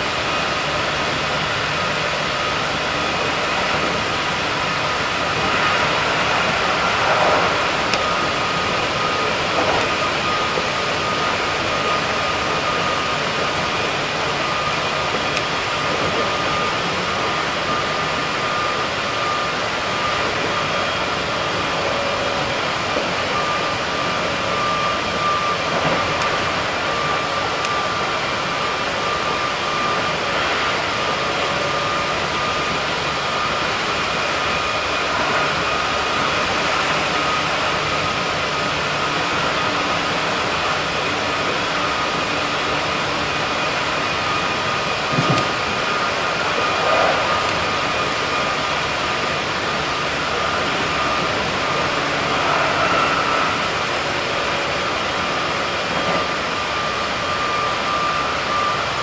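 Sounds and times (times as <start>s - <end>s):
high electric whine: 0.0s - 59.0s
train wheels rumbling on rail: 0.0s - 59.0s.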